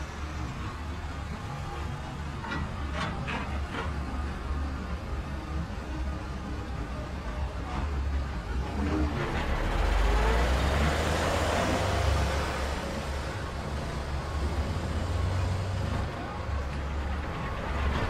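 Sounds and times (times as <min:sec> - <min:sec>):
heavy truck driving past: 0:08.2 - 0:18.0.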